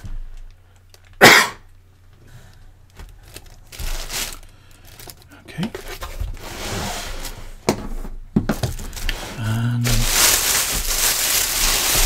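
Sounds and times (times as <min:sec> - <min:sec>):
plastic bags crinkling: 0:00.0 - 0:01.2, 0:02.9 - 0:06.4, 0:08.4 - 0:12.0.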